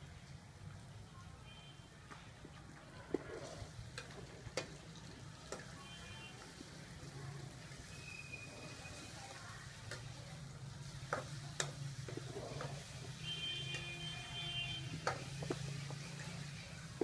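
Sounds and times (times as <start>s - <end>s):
fish sizzling in a wok: 3.5s - 17.0s.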